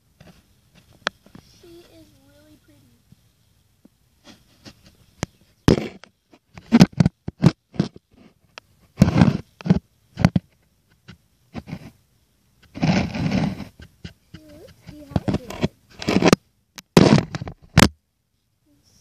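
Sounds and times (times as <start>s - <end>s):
rubbing on microphone: 4.2s - 12.0s, 12.6s - 16.4s.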